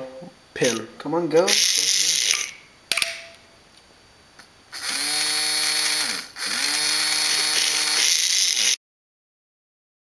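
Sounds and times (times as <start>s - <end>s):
small electric motor whirring: 1.5s - 2.6s, 4.7s - 8.8s.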